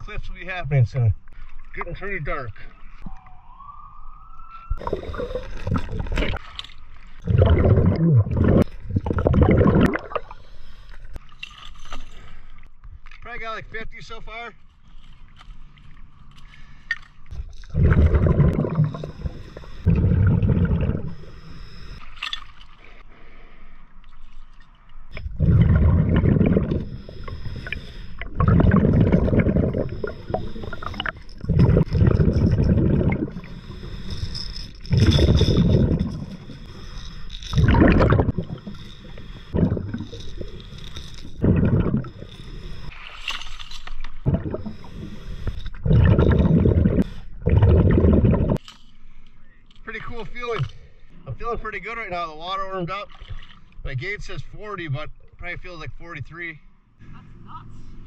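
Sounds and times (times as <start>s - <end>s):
bubbles rumbling and gurgling: 4.7s - 10.4s, 17.3s - 21.5s, 25.1s - 34.2s, 34.8s - 43.0s, 44.2s - 48.6s
diver breathing through regulator: 7.2s - 11.3s, 16.4s - 24.0s, 25.2s - 43.2s, 44.2s - 49.2s.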